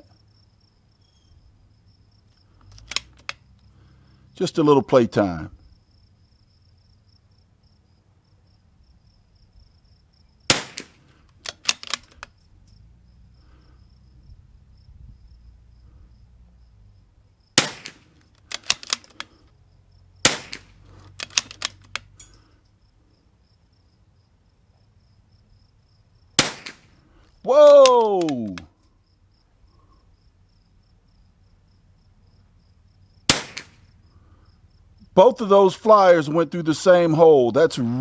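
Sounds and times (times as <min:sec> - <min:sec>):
light clicks: 0:02.3 - 0:03.6, 0:20.5 - 0:22.4
rifle shot cracks: 0:10.5 - 0:12.2, 0:17.6 - 0:19.1, 0:20.2 - 0:21.9, 0:26.4 - 0:27.0, 0:33.3 - 0:33.9.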